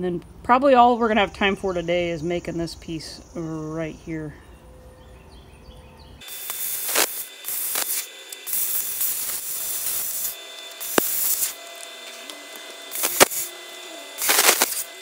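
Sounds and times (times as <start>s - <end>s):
metal-cutting tool hissing: 6.2s - 15.0s
sizzling inside metal tube: 6.2s - 15.0s.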